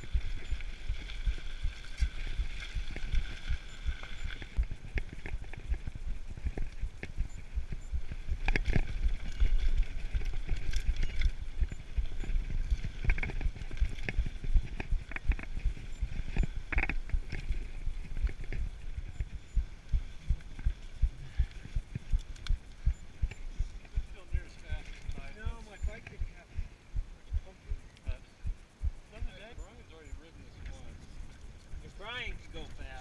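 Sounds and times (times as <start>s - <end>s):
mountain bike rattling on trail: 0.0s - 26.1s.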